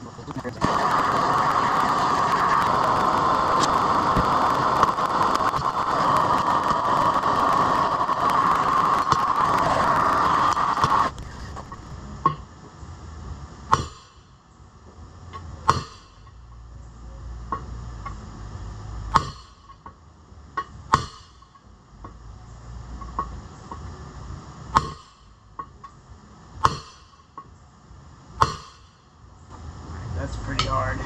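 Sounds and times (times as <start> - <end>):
hammer striking steel bar: 13.7 - 14.2, 15.6 - 16.3, 19.1 - 19.8, 20.6 - 21.6, 24.7 - 25.7, 26.6 - 27.5, 28.4 - 29.0.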